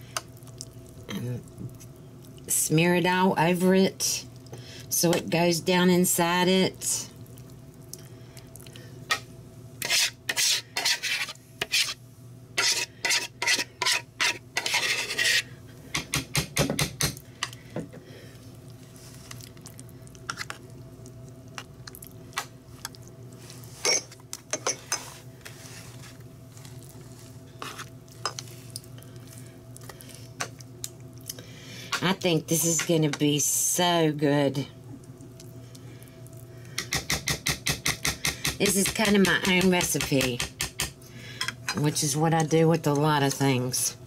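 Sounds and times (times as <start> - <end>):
metal spoon scraping baking pan: 9.8 - 12.0, 12.6 - 15.5.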